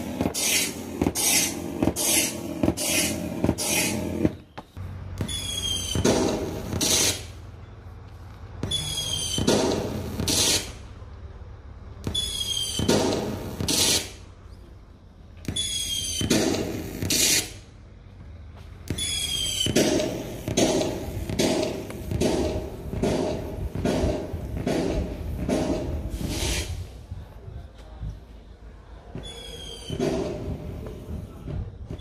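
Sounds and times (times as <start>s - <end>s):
firework bangs and crackling: 0.0s - 4.5s, 5.1s - 7.4s, 8.6s - 10.9s, 12.0s - 14.2s, 15.5s - 17.6s, 18.9s - 27.0s
firework whistling launch: 0.0s - 4.6s, 5.2s - 7.4s, 8.6s - 10.9s, 12.0s - 14.2s, 15.5s - 17.6s, 18.9s - 22.5s, 25.5s - 27.0s, 29.3s - 30.5s.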